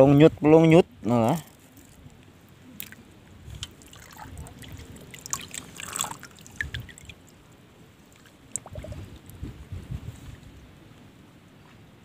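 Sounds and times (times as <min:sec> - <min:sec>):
pond water trickling: 0:01.2 - 0:09.4.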